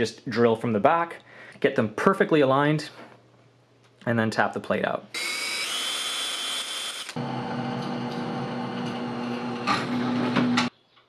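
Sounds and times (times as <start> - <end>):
power drill drilling into steel: 5.2 - 7.2
drill press motor humming: 5.2 - 10.7.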